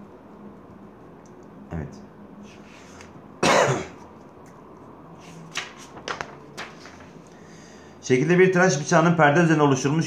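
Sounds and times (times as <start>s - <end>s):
man coughing: 3.4s - 4.0s
paper rustling: 5.2s - 7.4s.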